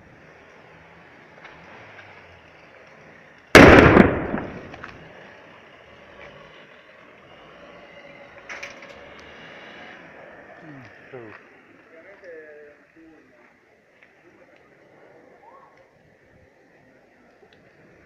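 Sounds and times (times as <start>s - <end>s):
loud bus explosion: 3.6s - 5.0s.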